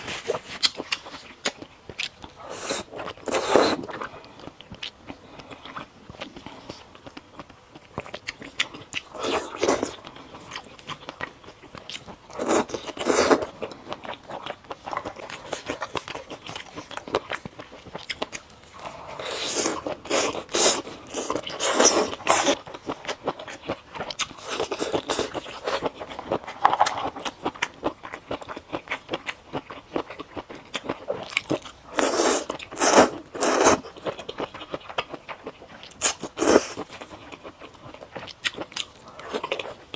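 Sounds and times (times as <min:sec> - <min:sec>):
slurping noodles: 0:02.5 - 0:04.0, 0:18.8 - 0:22.6, 0:32.0 - 0:33.8.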